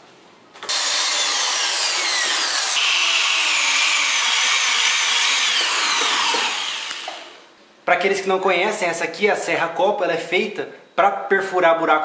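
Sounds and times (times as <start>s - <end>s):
electric drill boring into plastic pipe: 0.6s - 7.4s.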